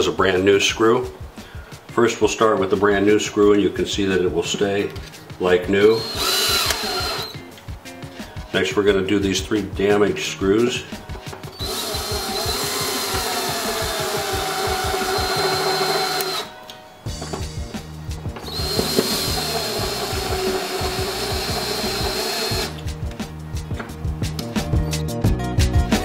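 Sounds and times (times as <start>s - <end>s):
background music: 0.0s - 26.0s
cordless drill driving screws: 5.9s - 7.4s, 11.6s - 16.5s, 18.4s - 22.8s.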